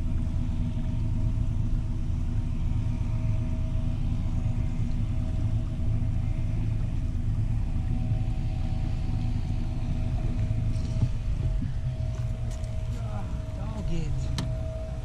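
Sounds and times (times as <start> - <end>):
electric trolling motor hum: 0.0 - 15.0
low rumble: 0.0 - 15.0.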